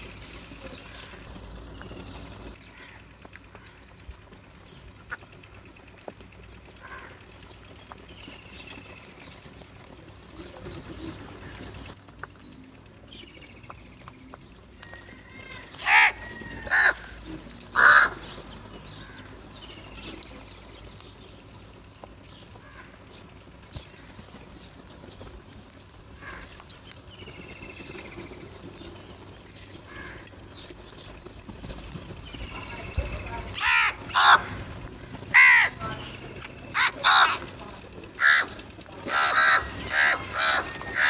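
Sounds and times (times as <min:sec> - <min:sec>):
crows cawing: 0:02.7 - 0:03.8, 0:06.8 - 0:07.3, 0:15.0 - 0:19.3, 0:26.2 - 0:26.6, 0:29.9 - 0:30.4, 0:33.5 - 0:41.0.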